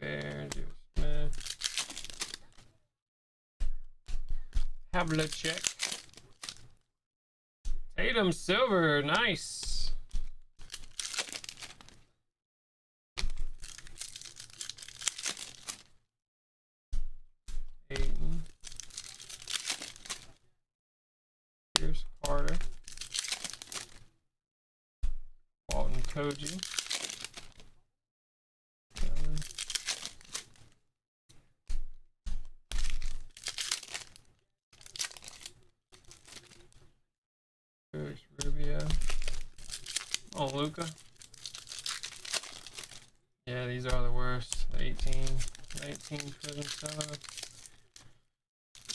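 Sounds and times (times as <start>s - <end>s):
foil wrappers crinkling: 1.2s - 2.6s, 4.6s - 6.8s, 10.1s - 12.1s, 13.2s - 16.0s, 18.0s - 20.4s, 22.2s - 24.0s, 25.7s - 27.7s, 29.0s - 30.8s, 32.7s - 36.8s, 38.4s - 48.2s.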